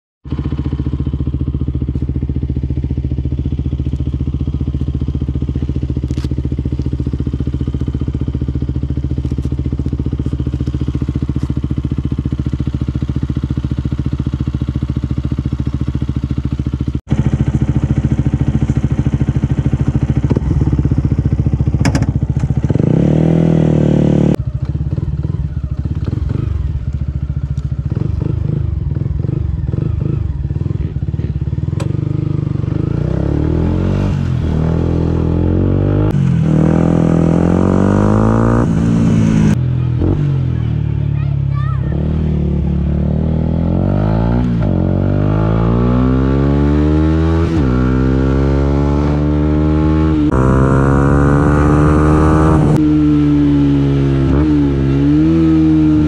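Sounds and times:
motorcycle engine idling and revving: 0:00.2 - 0:56.0.

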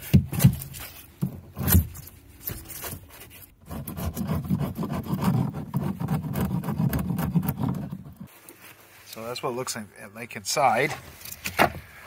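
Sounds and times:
hand tool scraping plastic pipe: 0:00.0 - 0:08.7.

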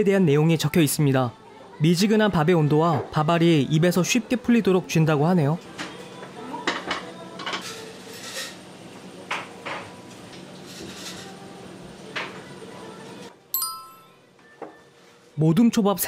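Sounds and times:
bell-like ding: 0:13.6 - 0:14.2
dishes and glasses clinking: 0:13.6 - 0:14.2.

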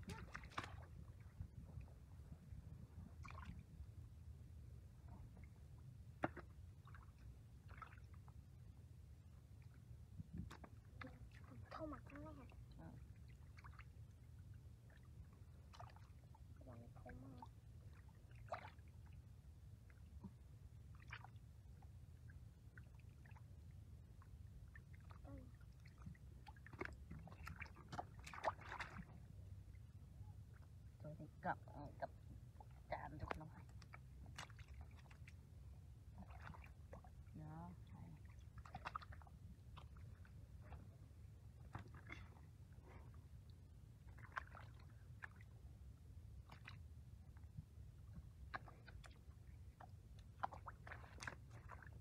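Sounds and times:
small splashes in muddy water: 0:00.0 - 0:01.4, 0:03.1 - 0:03.8, 0:06.1 - 0:08.2, 0:10.4 - 0:13.9, 0:15.6 - 0:19.2, 0:20.9 - 0:21.4, 0:24.8 - 0:29.3, 0:33.2 - 0:35.4, 0:36.1 - 0:40.9, 0:41.6 - 0:43.2, 0:44.0 - 0:45.6, 0:46.4 - 0:46.9, 0:48.3 - 0:52.0
steady low rumble: 0:00.0 - 0:06.2.

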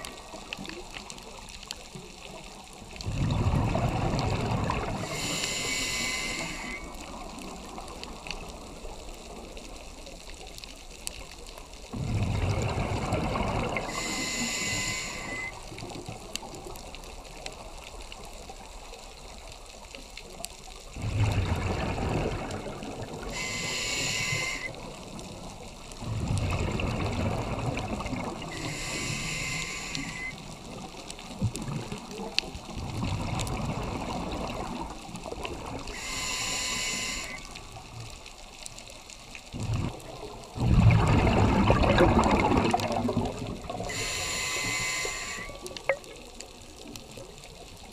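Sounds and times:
bubbles gurgling underwater: 0:01.9 - 0:05.3, 0:11.9 - 0:14.3, 0:20.8 - 0:23.5, 0:24.4 - 0:29.0, 0:30.1 - 0:36.1, 0:39.4 - 0:44.4
diver breathing through regulator: 0:04.9 - 0:07.0, 0:13.7 - 0:15.6, 0:23.2 - 0:24.8, 0:28.5 - 0:30.4, 0:35.8 - 0:37.6, 0:43.8 - 0:45.7.

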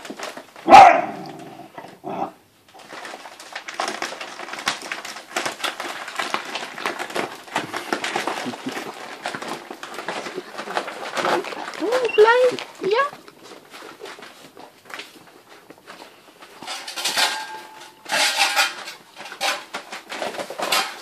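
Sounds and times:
plastic bag crinkling: 0:00.0 - 0:21.0
puppy yelping: 0:00.7 - 0:01.4.

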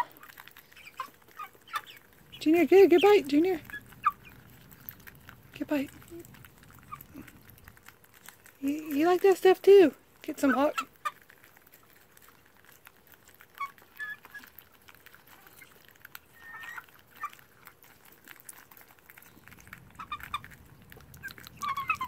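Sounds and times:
beaks clicking: 0:00.0 - 0:22.0
chicks peeping: 0:00.0 - 0:22.0.

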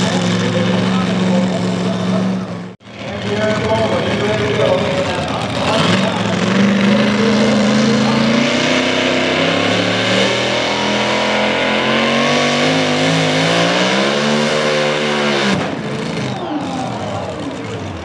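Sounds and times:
supercharged engine running hard: 0:00.0 - 0:18.0.

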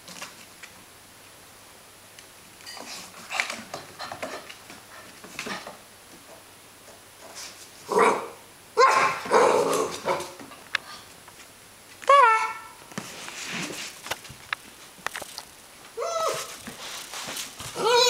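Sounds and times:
puppy barking: 0:07.9 - 0:10.4
light clicks and rustles: 0:12.9 - 0:15.6.

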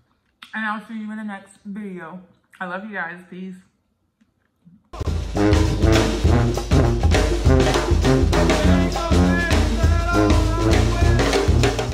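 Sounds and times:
brass melody: 0:05.0 - 0:11.9
drum kit beat: 0:05.0 - 0:11.9
steady bass: 0:05.0 - 0:11.9.

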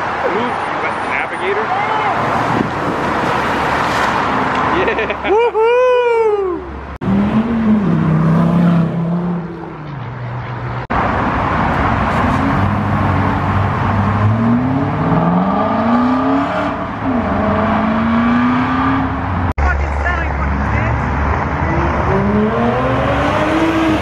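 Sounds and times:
car engine accelerating: 0:11.0 - 0:19.5, 0:21.0 - 0:24.0.

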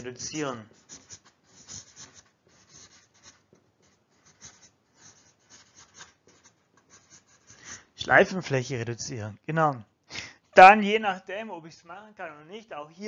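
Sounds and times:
marker writing on whiteboard: 0:00.0 - 0:07.9.

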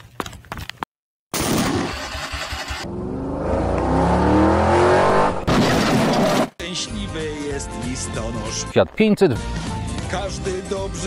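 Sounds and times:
van engine revving: 0:01.9 - 0:06.5.

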